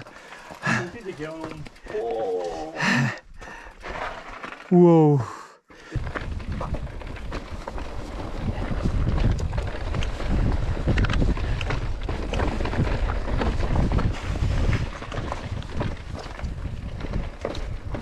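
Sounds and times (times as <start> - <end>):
wind buffeting microphone: 5.9 - 18.0.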